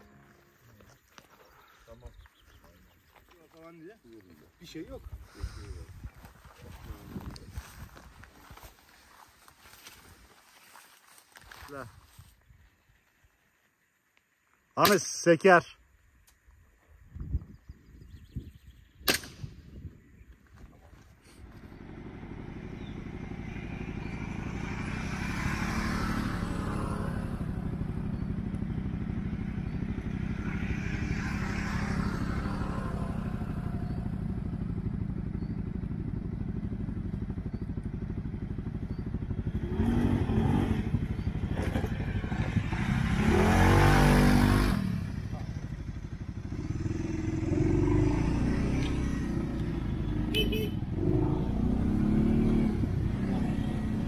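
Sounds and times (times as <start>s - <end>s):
atv engine revving: 21.4s - 54.0s.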